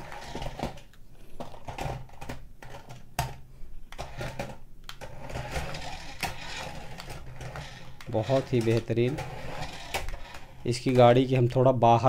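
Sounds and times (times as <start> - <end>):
toy car motor whirring: 5.2 - 10.6.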